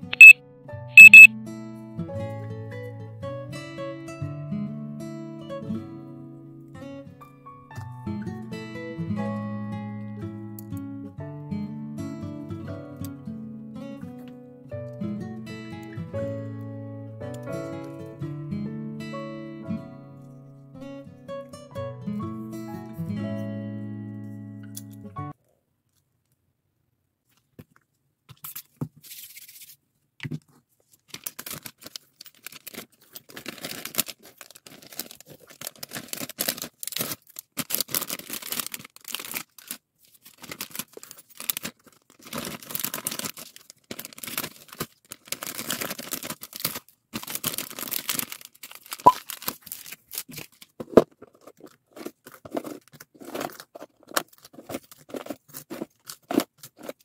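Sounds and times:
plastic bags crinkling: 0:30.8 - 0:57.0.

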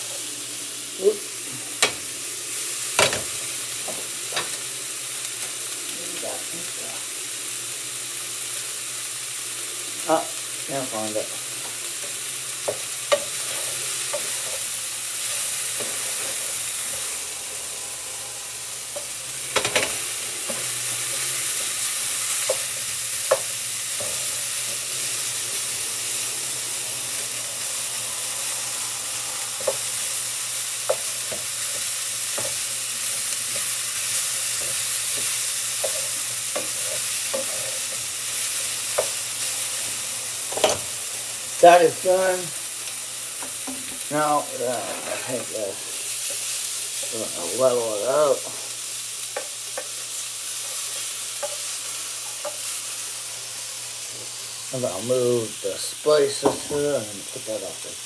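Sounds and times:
food sizzling in a pan: 0:00.0 - 0:58.0
utensil scraping a pan: 0:44.7 - 0:45.6.

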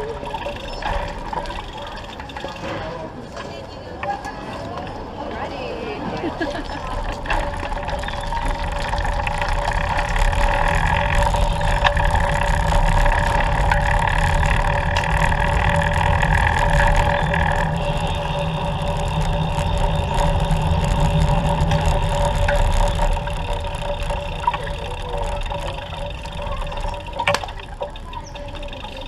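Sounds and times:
road noise rumble: 0:00.0 - 0:29.0
humming tones: 0:06.3 - 0:29.0.

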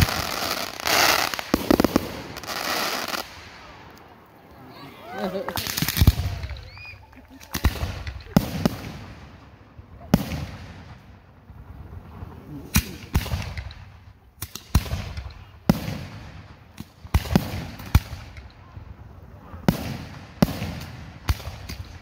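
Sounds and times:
firework shells bursting: 0:00.0 - 0:04.3, 0:05.4 - 0:11.2.

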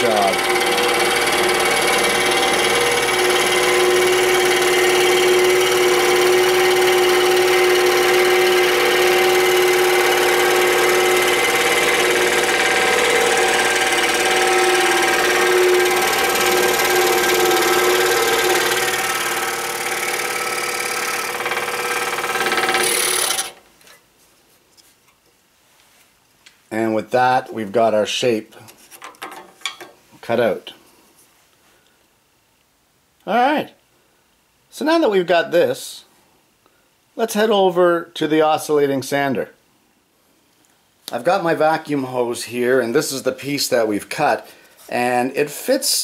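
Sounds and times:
scroll saw cutting wood: 0:00.0 - 0:23.6.

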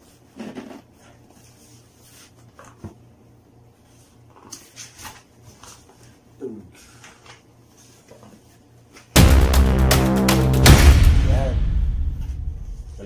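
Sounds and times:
steady low hum: 0:09.2 - 0:13.0.

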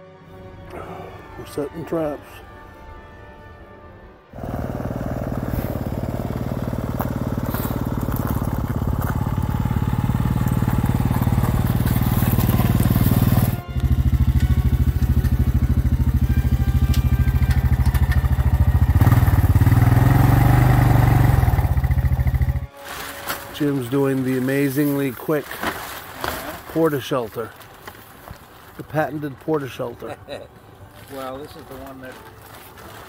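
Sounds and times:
atv engine running: 0:04.4 - 0:22.7.

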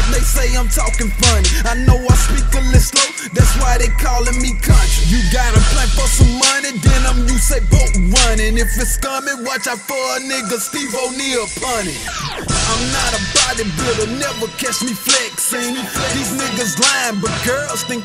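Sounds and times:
deep sub-bass: 0:00.0 - 0:09.0
rapping over a beat: 0:00.0 - 0:18.0.

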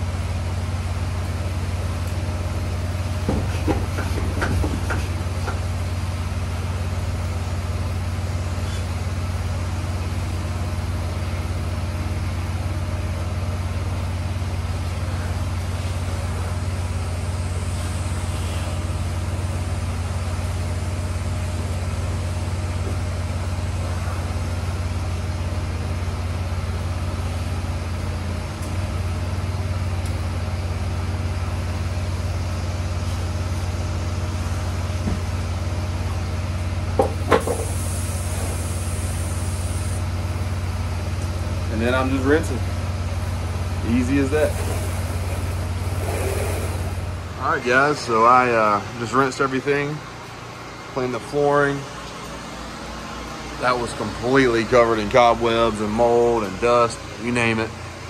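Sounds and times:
pressure washer engine running: 0:00.0 - 0:58.0.

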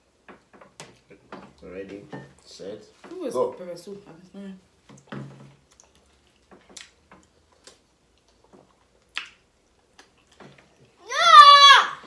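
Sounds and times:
chewing mouth clicks and smacks: 0:05.0 - 0:10.4.

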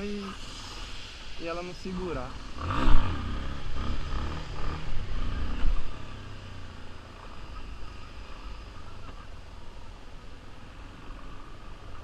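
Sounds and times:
motorcycle engine revving: 0:02.4 - 0:09.3.

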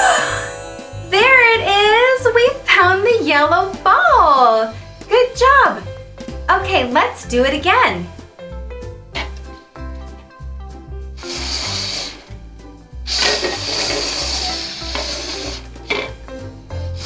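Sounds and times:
background music with bass: 0:00.0 - 0:17.0
plastic cups scraping on table: 0:13.1 - 0:16.2.

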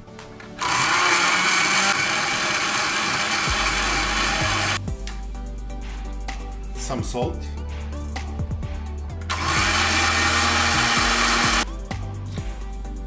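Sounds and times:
blender running: 0:00.6 - 0:04.8, 0:09.3 - 0:11.7.

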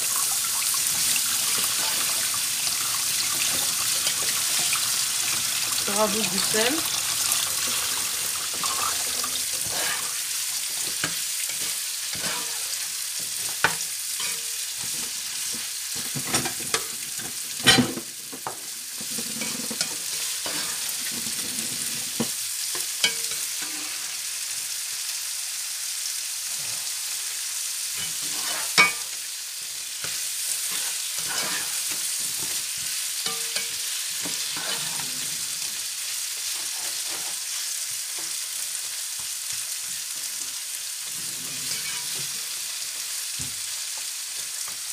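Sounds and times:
vegetables sizzling in oil: 0:00.0 - 0:44.9
spatula stirring and scraping: 0:00.7 - 0:17.3, 0:18.4 - 0:22.3, 0:23.0 - 0:24.2, 0:28.0 - 0:29.0, 0:30.0 - 0:35.8, 0:36.4 - 0:37.6, 0:39.5 - 0:42.6.

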